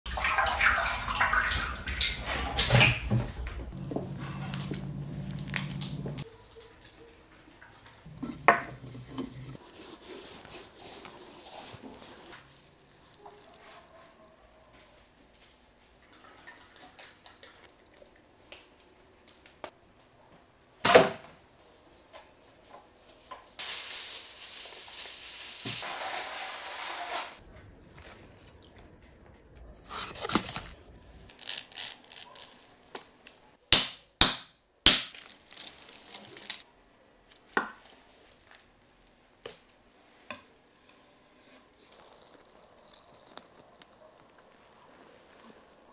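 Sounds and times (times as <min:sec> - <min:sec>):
knife and utensil noises: 0:02.2 - 0:06.3, 0:29.6 - 0:32.8
hissing sizzle of frying: 0:23.6 - 0:27.4.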